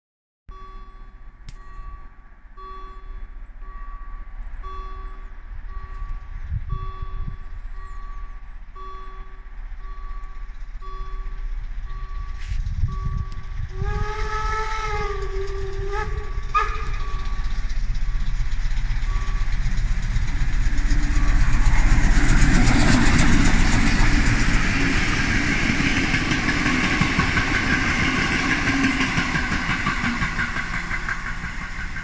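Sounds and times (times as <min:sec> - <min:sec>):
level crossing warning tone: 0:00.5 - 0:32.0
low train rumble: 0:00.5 - 0:32.0
steam locomotive whistle: 0:12.3 - 0:17.7, 0:20.7 - 0:32.0.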